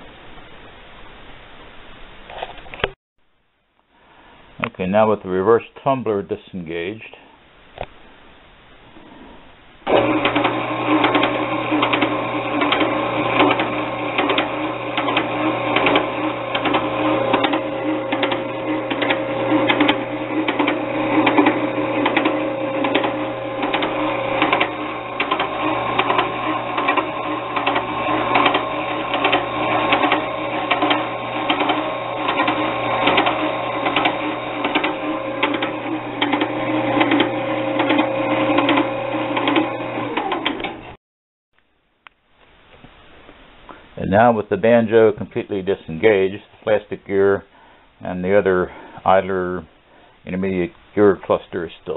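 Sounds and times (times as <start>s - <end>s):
lathe humming with mechanical rattle: 9.8s - 41.0s.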